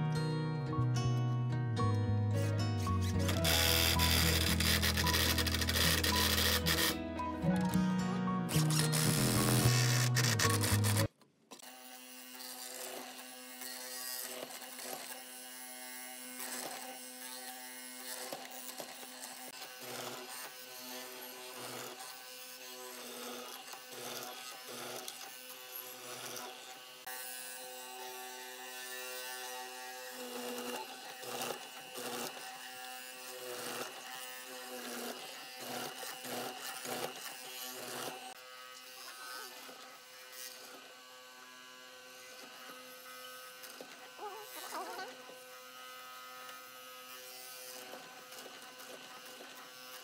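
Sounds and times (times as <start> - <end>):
mortising machine electric whine: 2.4 - 11.1
chisel cutting into wood: 3.1 - 7.0, 8.5 - 11.1, 30.2 - 38.4.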